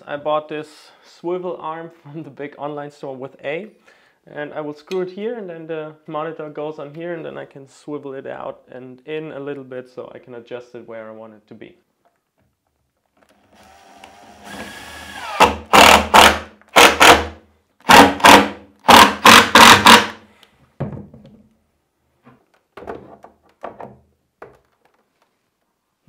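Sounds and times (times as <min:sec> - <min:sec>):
cordless drill driving screws: 0:13.3 - 0:17.3, 0:17.9 - 0:20.2.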